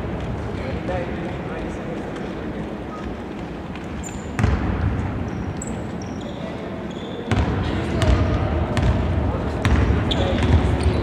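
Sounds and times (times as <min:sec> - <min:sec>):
sneaker squeaks: 0:02.9 - 0:08.2, 0:09.6 - 0:11.0
basketball bouncing on hardwood floor: 0:04.4 - 0:04.9, 0:07.3 - 0:09.0, 0:09.6 - 0:10.6.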